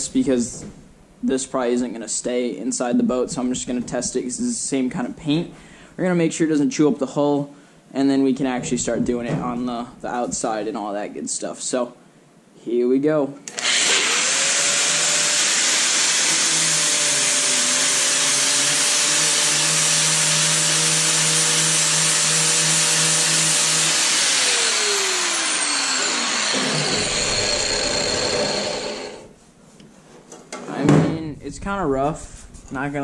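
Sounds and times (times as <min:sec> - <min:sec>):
angle grinder stripping paint: 0:13.5 - 0:29.3.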